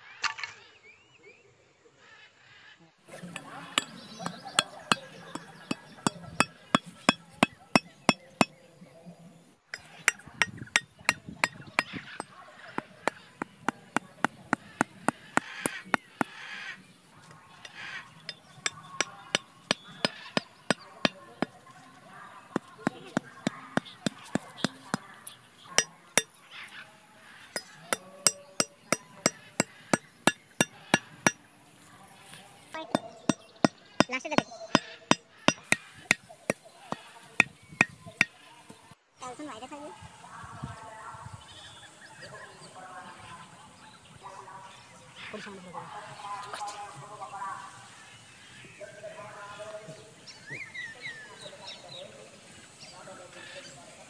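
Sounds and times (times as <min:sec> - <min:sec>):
stake hammered into ground: 0:09.8 - 0:16.4, 0:27.6 - 0:31.4, 0:32.8 - 0:38.4.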